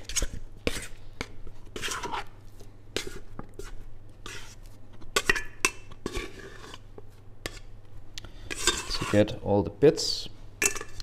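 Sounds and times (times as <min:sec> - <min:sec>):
dough card scraping steel bowl: 0:00.0 - 0:01.0, 0:01.7 - 0:02.4, 0:03.0 - 0:07.7, 0:08.5 - 0:09.4.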